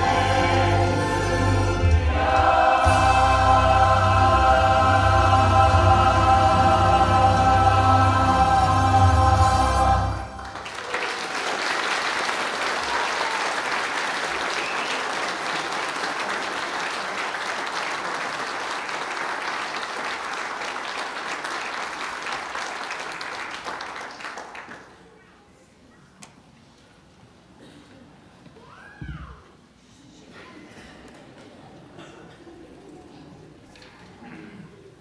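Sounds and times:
choir singing with accompaniment: 0.0s - 10.6s
congregation applauding: 10.1s - 25.0s.

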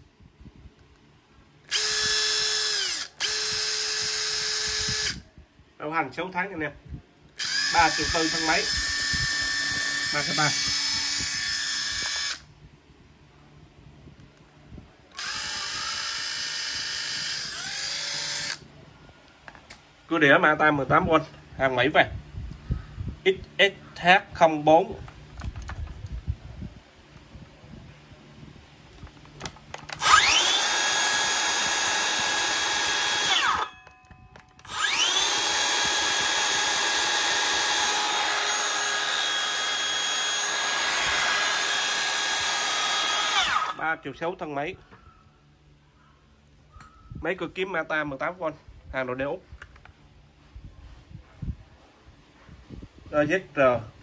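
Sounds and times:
impact driver spinning with whine: 1.7s - 5.2s, 7.4s - 12.5s, 15.1s - 18.7s, 29.0s - 33.8s, 34.6s - 43.8s.

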